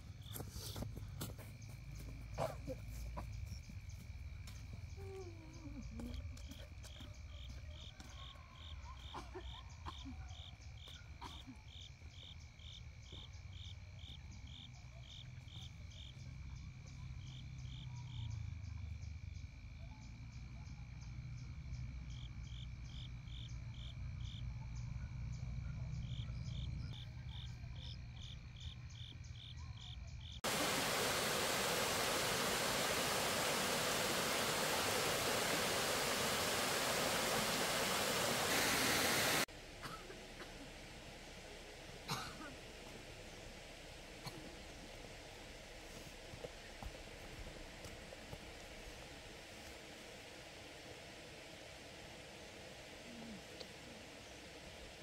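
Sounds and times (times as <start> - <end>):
loud steady hiss: 30.4 - 55.0.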